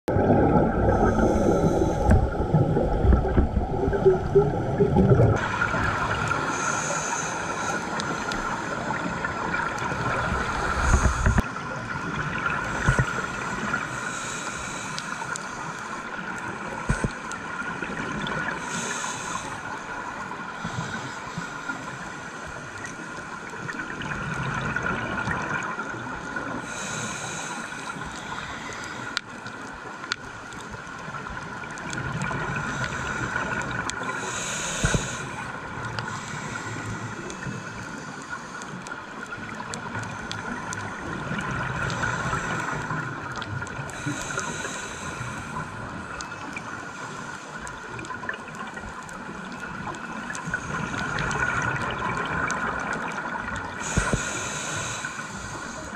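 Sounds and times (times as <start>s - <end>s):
exhaled bubbles from regulator: 0.1s - 6.7s.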